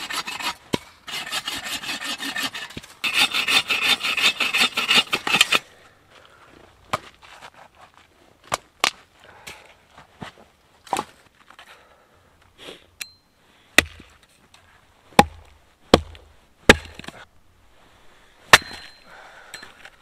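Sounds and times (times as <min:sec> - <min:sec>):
hatchet chopping wood: 0:13.8 - 0:14.1, 0:15.2 - 0:17.2, 0:18.5 - 0:19.0.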